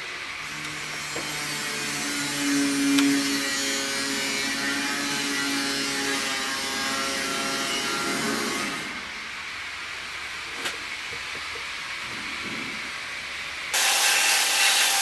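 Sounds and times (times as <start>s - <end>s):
power tool motor hissing: 13.8s - 15.0s.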